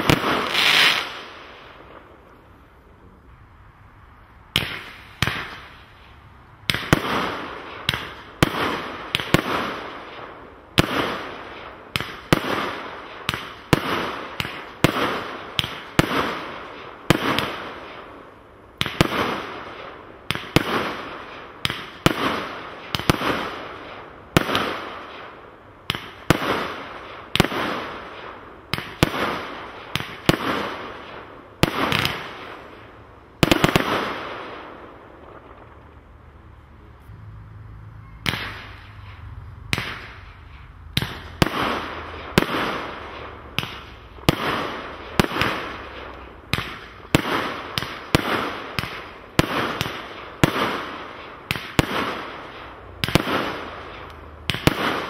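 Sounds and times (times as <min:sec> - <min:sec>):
firework shots banging and hissing: 0:00.0 - 0:02.3, 0:04.5 - 0:36.0, 0:38.2 - 0:55.0.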